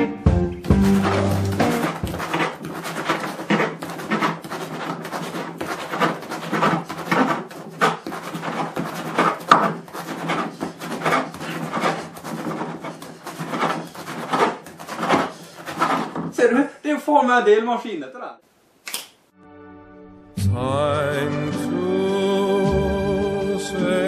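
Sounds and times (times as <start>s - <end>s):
blade knocking on wooden board: 0.7s - 10.5s
knife sawing through bread: 0.7s - 16.4s.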